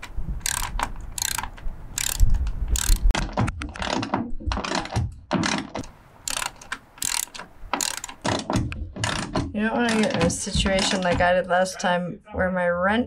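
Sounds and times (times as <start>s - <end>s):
ratchet wrench clicking: 0.4s - 3.1s, 6.2s - 8.2s.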